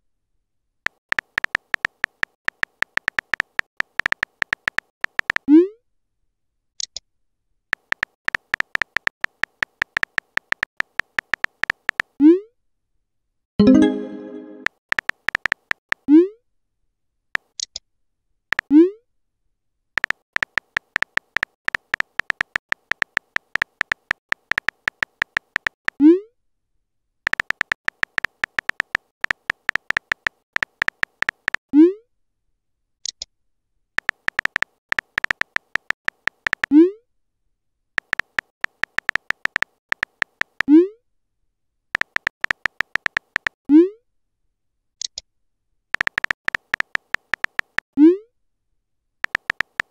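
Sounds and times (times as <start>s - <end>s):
synthetic keyboard-tap clicks: 0.9s - 5.5s, 7.8s - 12.2s, 13.6s - 16.0s, 20.0s - 26.0s, 27.3s - 31.6s, 34.0s - 36.7s, 38.0s - 40.7s, 42.0s - 43.6s, 46.0s - 47.9s, 49.2s - 49.9s.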